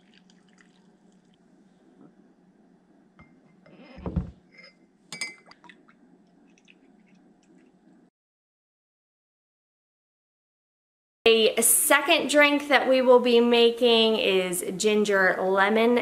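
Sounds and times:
spoon clinking against glass mug: 0:04.6 - 0:05.6.

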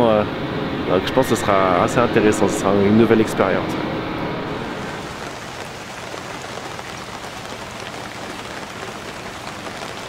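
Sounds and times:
rain falling on water: 0:04.7 - 0:10.0.

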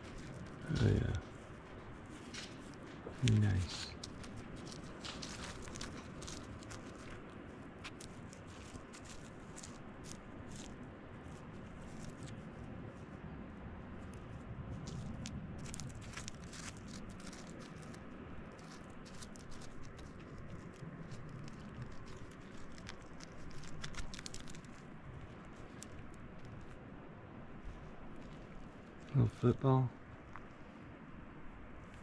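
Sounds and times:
rock fragments clicking and scraping: 0:02.3 - 0:07.2, 0:14.9 - 0:26.8.

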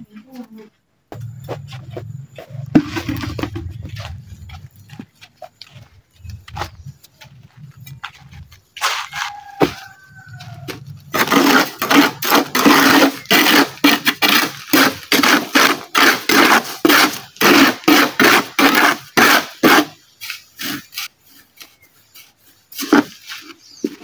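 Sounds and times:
steel trowel scraping concrete: 0:11.0 - 0:21.6, 0:22.2 - 0:24.0.

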